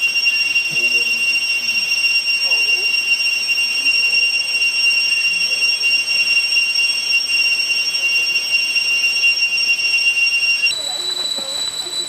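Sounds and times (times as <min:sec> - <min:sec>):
cicadas buzzing: 0:10.6 - 0:12.0.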